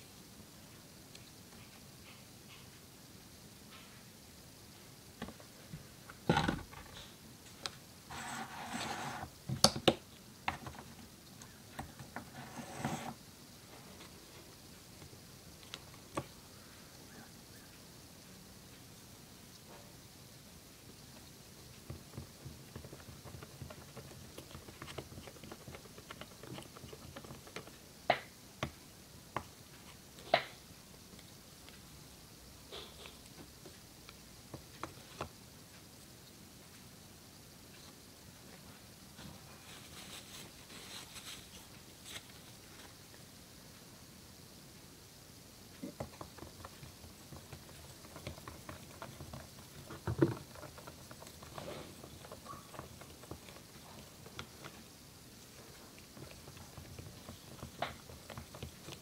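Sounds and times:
stick scraping a cup: 0:08.1 - 0:09.3, 0:12.2 - 0:13.2.

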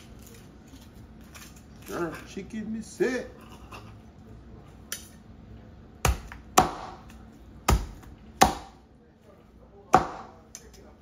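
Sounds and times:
cleaver chopping on cutting board: 0:06.0 - 0:07.0, 0:07.7 - 0:08.8, 0:10.0 - 0:10.3.

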